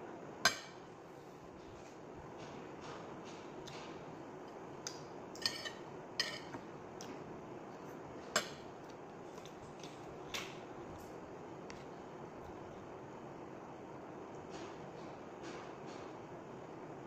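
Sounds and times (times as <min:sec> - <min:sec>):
fork clinking on ceramic plate: 0:05.4 - 0:06.6.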